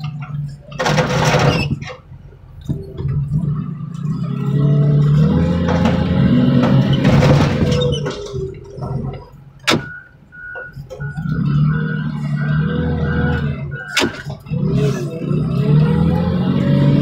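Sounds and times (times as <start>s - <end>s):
car warning chime beeping: 9.7s - 14.3s.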